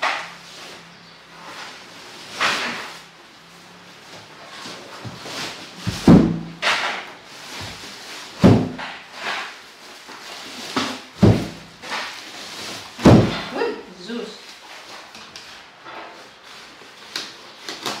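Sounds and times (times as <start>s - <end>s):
heavy thuds: 5.8s - 6.7s, 8.4s - 8.9s, 11.2s - 11.9s, 13.0s - 13.5s.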